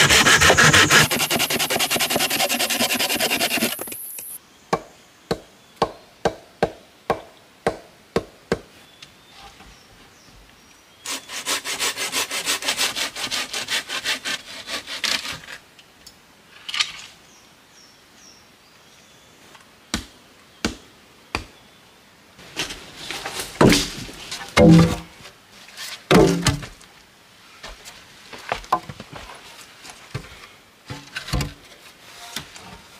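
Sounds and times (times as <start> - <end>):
hand saw cutting log: 0.0 - 4.4, 11.1 - 15.5.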